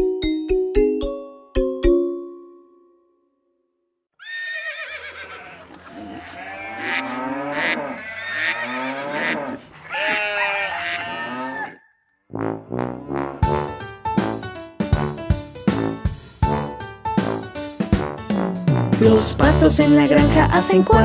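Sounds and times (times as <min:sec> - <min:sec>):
mallet jingle chime: 0:00.0 - 0:03.1
sheep and goats bleating: 0:04.2 - 0:11.8
cows mooing: 0:04.3 - 0:11.9
chickens clucking: 0:05.2 - 0:11.8
band music: 0:12.8 - 0:21.0.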